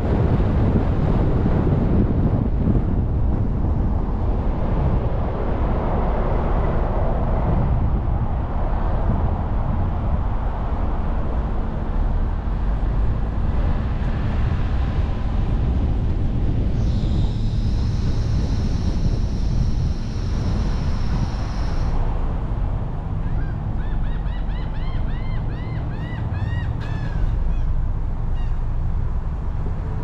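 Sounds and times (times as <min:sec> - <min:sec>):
tyre and wind noise: 0:00.0 - 0:30.0
high-pitched whine: 0:10.2 - 0:28.8.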